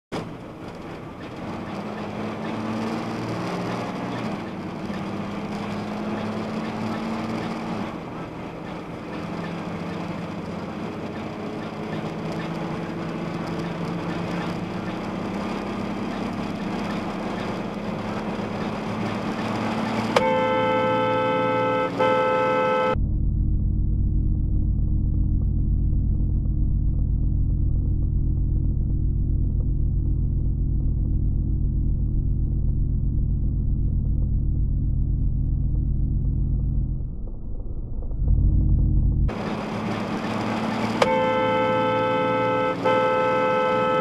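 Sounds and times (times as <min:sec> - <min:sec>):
car road and engine noise: 0:00.0 - 0:44.0
car horn blast: 0:19.8 - 0:23.0, 0:40.8 - 0:44.0.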